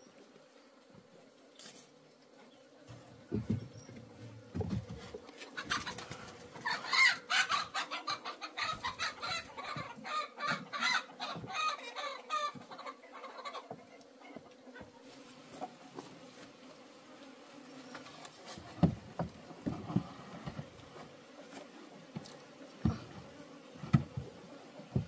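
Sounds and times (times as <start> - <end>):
chickens clucking: 5.4 - 15.0.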